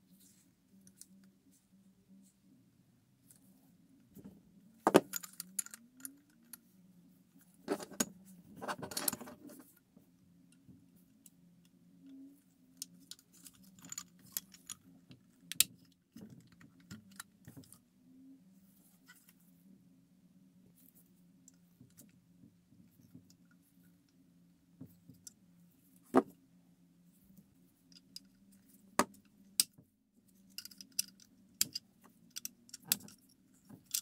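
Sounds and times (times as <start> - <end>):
faint steady hum: 0.0 - 34.0
plastic toy parts clicking and rattling: 4.9 - 6.6, 12.8 - 17.8, 30.4 - 34.0.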